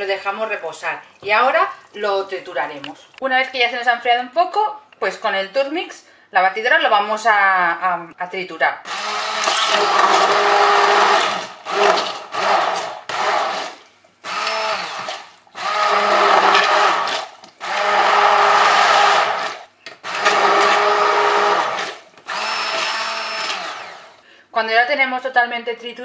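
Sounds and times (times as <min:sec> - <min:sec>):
stick blender pureeing: 0:08.9 - 0:24.2.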